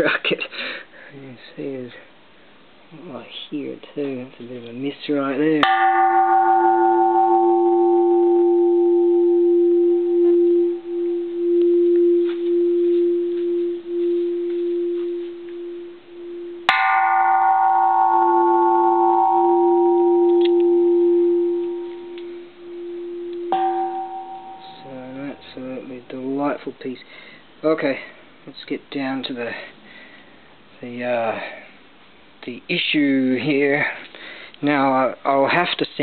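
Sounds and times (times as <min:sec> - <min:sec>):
temple bell ringing: 0:05.6 - 0:26.4.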